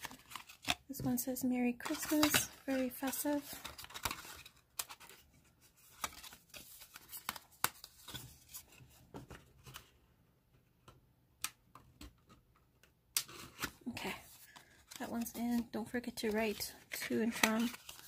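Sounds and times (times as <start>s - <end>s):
paper rustling: 0.0s - 0.8s, 1.8s - 9.8s, 13.4s - 18.0s.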